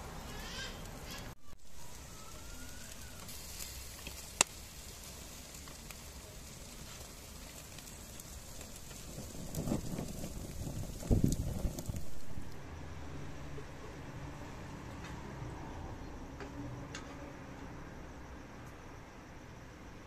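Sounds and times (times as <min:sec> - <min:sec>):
meat sizzling on charcoal fire: 0:00.0 - 0:15.7
sharp pop from fire: 0:03.9 - 0:04.6.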